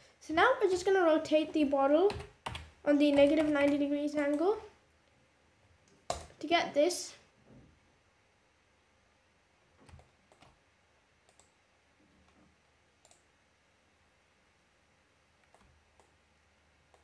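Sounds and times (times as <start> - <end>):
computer mouse clicks: 11.2 - 11.6, 13.0 - 13.3, 15.4 - 16.2.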